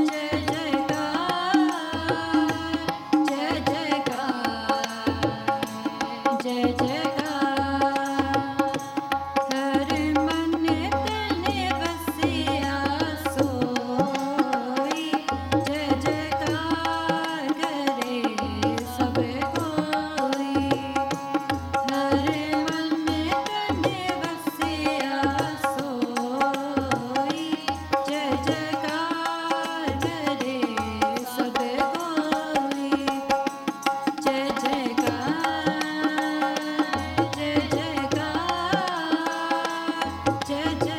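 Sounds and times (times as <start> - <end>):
women singing a hymn: 0.0 - 8.2, 34.3 - 40.9
harmonium melody: 0.0 - 40.9
tabla drumming: 0.0 - 40.9.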